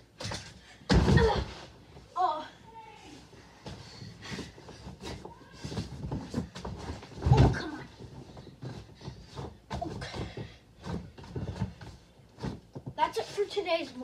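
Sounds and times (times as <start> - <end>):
rustles and bumps on air mattress: 3.4 - 14.0.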